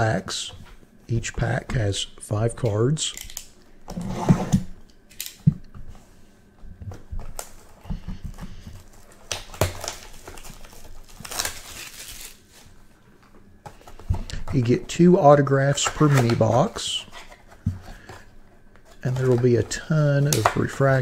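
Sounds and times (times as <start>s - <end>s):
wrappers and cardboard crinkling: 6.9s - 21.0s.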